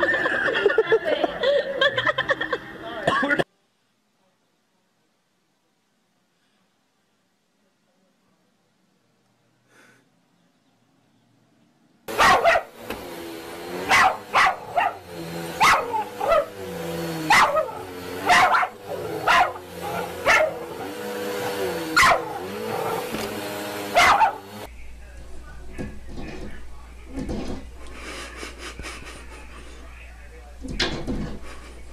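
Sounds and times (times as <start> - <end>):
small dog barking: 12.1 - 12.9, 13.8 - 16.6, 17.2 - 24.7
vacuum cleaner motor drone: 12.1 - 31.9.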